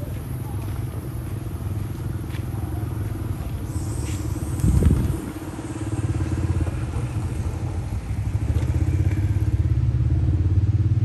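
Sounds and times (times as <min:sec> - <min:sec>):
small engine running: 0:00.6 - 0:11.0.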